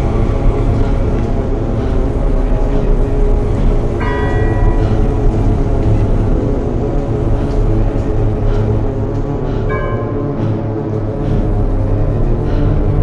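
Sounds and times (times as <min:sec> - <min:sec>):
dark ambient drone: 0:00.0 - 0:13.0
bell-like tone struck: 0:09.7 - 0:10.6.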